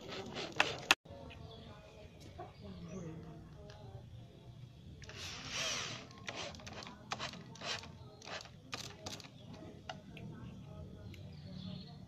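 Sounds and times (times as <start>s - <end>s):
electric drill boring into wood: 5.1s - 8.5s.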